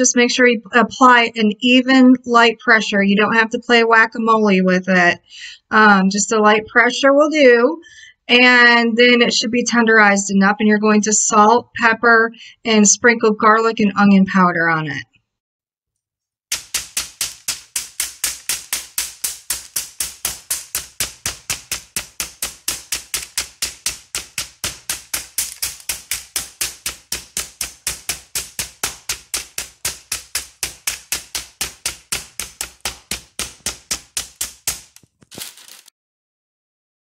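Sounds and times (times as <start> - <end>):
meat mallet pounding steak: 16.5 - 35.8.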